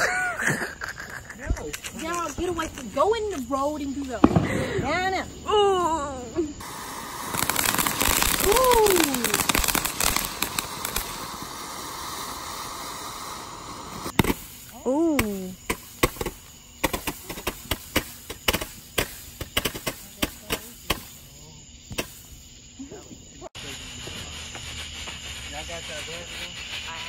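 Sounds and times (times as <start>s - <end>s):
firework fountain hissing and crackling: 0.0s - 27.0s
firework pops and cracks: 0.8s - 22.4s.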